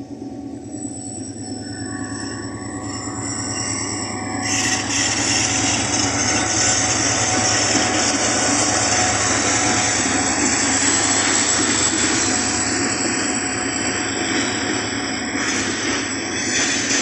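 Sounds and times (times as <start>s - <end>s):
diesel locomotive engine drone: 0.0s - 17.0s.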